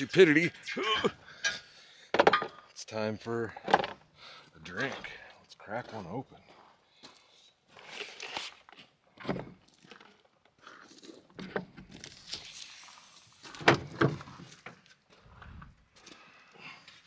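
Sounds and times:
knocks and thunks of handling: 2.1 - 2.6, 3.6 - 4.0, 9.2 - 9.7, 13.6 - 14.8.

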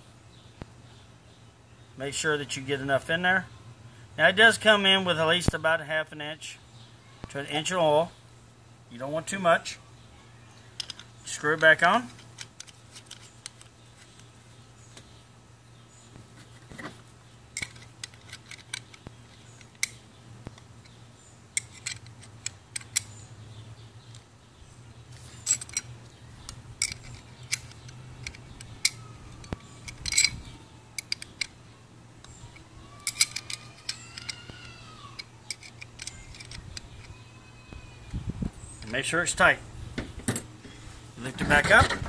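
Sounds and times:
wrench clicking on metal cap: 21.6 - 23.2, 25.5 - 30.4, 31.0 - 31.6, 32.2 - 34.4, 35.1 - 37.2.

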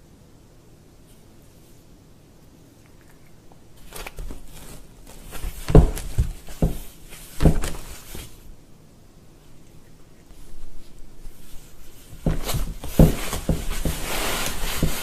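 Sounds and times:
dull knocks on cardboard panel: 5.6 - 7.8, 12.2 - 14.1
cat scraping against cardboard: 11.3 - 15.0.

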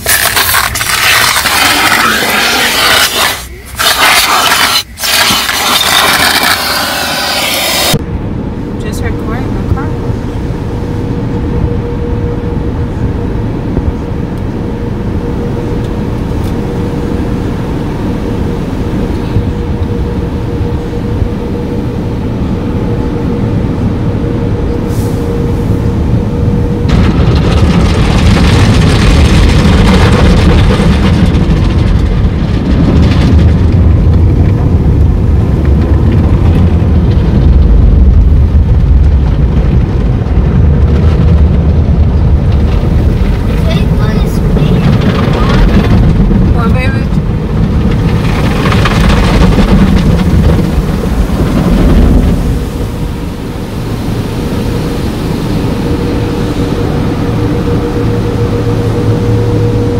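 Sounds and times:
water spraying onto car: 0.0 - 8.0, 46.5 - 59.9
car wash rumble: 0.0 - 59.9.

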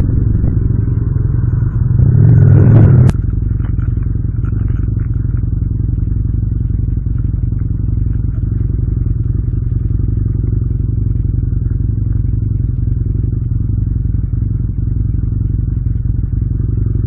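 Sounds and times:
motorcycle engine running steadily: 0.0 - 17.0.

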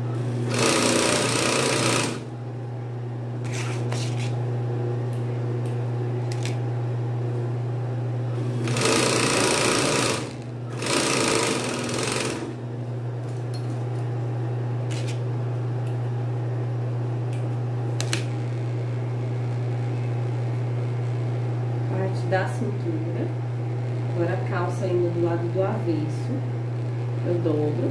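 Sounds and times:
motor humming: 0.0 - 13.3
sewing machine stitching: 0.4 - 2.3, 8.6 - 12.5.

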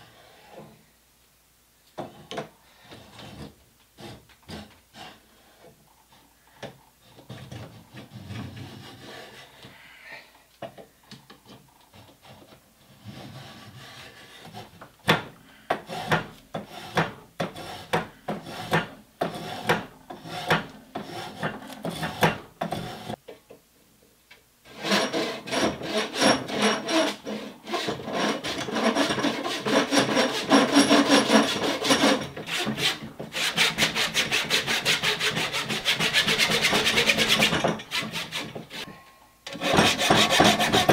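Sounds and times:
handsaw cutting wood: 15.7 - 23.2, 24.7 - 38.9, 39.5 - 40.9
spokeshave scraping wood: 15.8 - 23.2, 24.8 - 38.9, 39.5 - 40.9.

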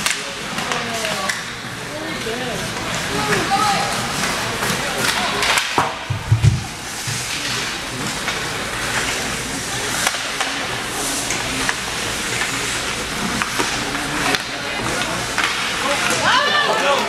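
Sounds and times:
clacks of sticks and puck: 0.0 - 1.5, 2.8 - 17.0
skates hissing on ice: 6.7 - 14.2.

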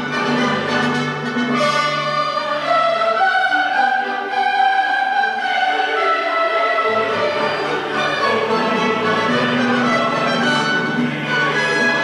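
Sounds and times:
orchestral music with strings: 0.0 - 12.0.

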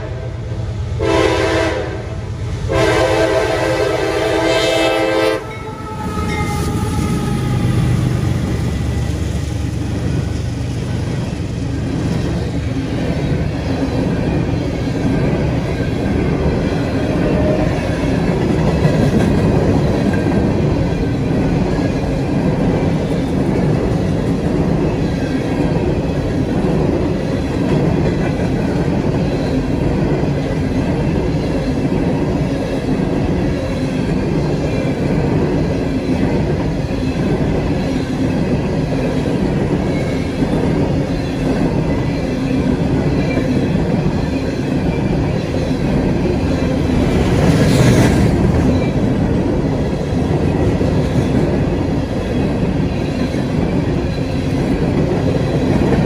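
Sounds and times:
train horn blast: 0.0 - 8.5
diesel locomotives rumbling: 0.0 - 56.0.

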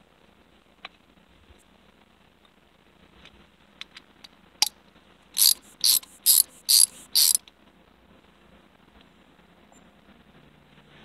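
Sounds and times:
ratchet clicking: 5.4 - 7.4.

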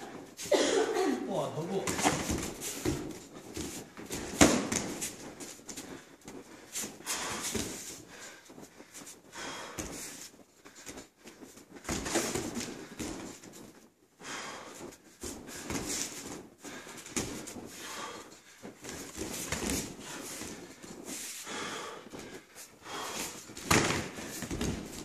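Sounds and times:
bare feet thudding on mats: 1.6 - 25.0
gloved punches and kicks landing: 1.7 - 5.4, 11.8 - 13.4, 23.5 - 25.0
sharp breaths through nose: 5.0 - 13.4, 14.2 - 25.0.

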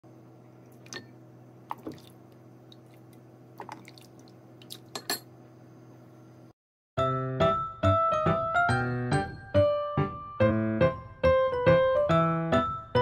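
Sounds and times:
steady low hum: 0.1 - 6.6
liquid dripping and splashing: 1.7 - 5.0.

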